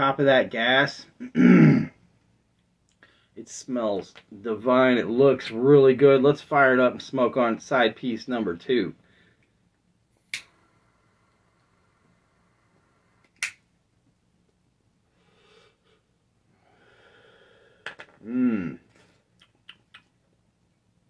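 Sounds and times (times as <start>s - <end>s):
throaty vocal sound: 1.2s - 2.0s, 18.2s - 18.9s
smoke exhaled in soft breaths: 9.0s - 13.3s.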